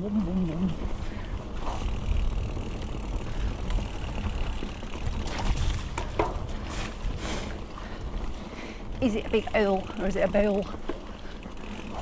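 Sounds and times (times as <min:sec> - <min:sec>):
mountain bike riding rumble: 0:00.0 - 0:12.0
bike clicks and knocks: 0:01.6 - 0:07.1, 0:09.0 - 0:12.0.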